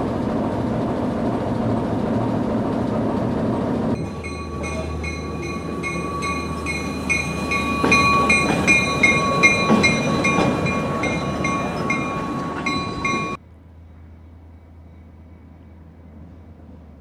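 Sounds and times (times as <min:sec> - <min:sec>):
diesel locomotive engine rumbling: 0:00.0 - 0:17.0
locomotive bell ringing: 0:04.0 - 0:13.4.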